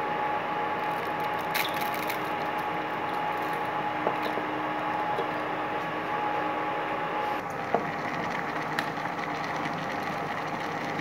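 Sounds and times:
steady hum and hiss: 0:00.0 - 0:11.0.

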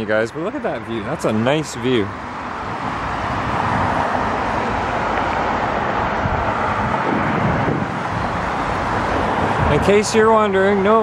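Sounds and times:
road traffic hiss: 0:00.0 - 0:11.0.

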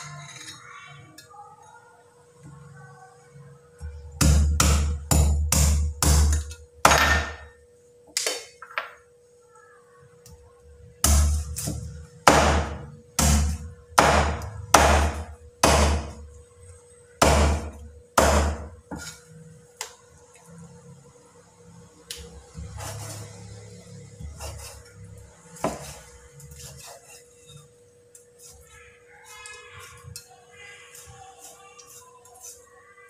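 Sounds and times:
cleaver chopping on wooden board: 0:12.3 - 0:16.2.

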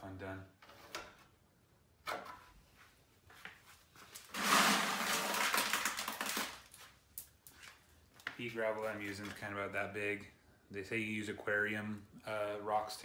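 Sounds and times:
gravel scooped by hand: 0:04.2 - 0:06.4.

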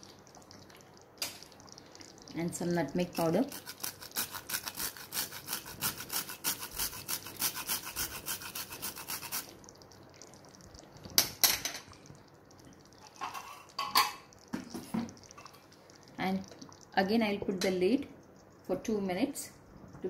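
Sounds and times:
nutmeg rasping on metal grater: 0:03.5 - 0:09.4.

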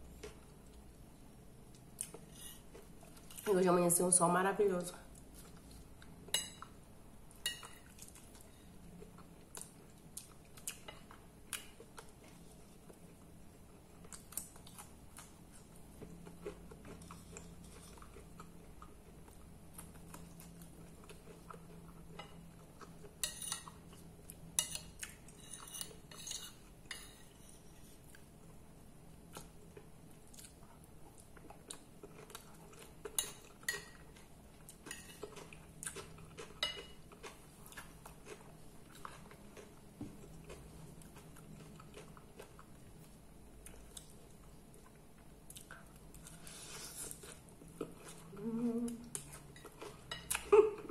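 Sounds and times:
fork scraping a ceramic plate: 0:02.3 - 0:02.6, 0:25.4 - 0:28.0
quiet chewing: 0:05.1 - 0:28.6, 0:29.3 - 0:50.9.

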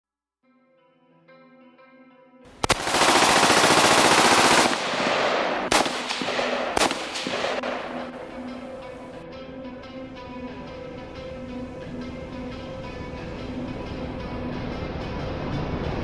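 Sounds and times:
machine-gun fire: 0:02.6 - 0:08.7
single gunshots: 0:02.6 - 0:08.9
quiet background music: 0:04.7 - 0:16.0.

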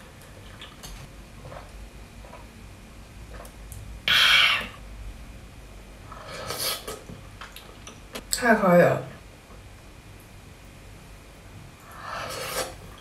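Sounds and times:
short breathy hiss: 0:04.1 - 0:04.8.

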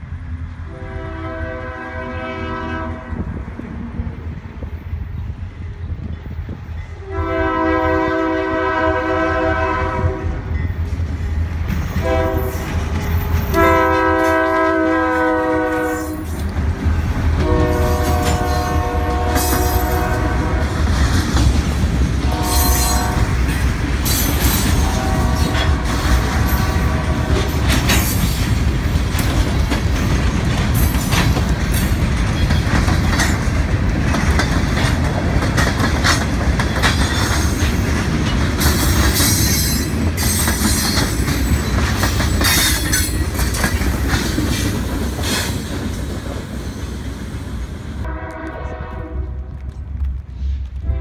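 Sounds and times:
freight train wheels clacking: 0:05.2 - 0:51.0.

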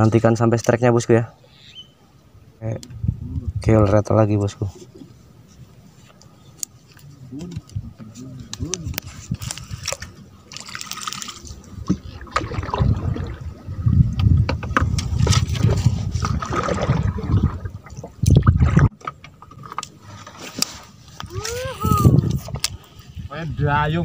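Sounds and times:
water sloshing against hull: 0:04.7 - 0:21.2, 0:22.1 - 0:23.4
paddle strokes: 0:04.7 - 0:23.3.

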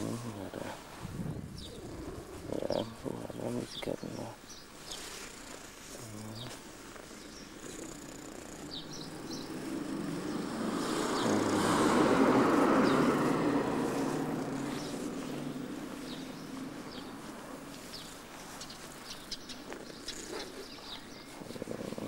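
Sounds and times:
vehicle passing by: 0:07.8 - 0:18.9
faint bird chirps: 0:17.8 - 0:22.0.

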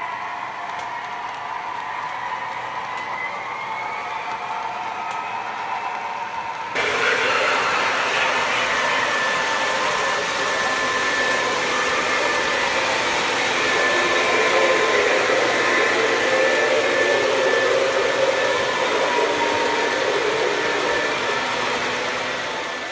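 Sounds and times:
faint high whine: 0:06.8 - 0:22.9
model train motors whirring: 0:06.8 - 0:22.9.

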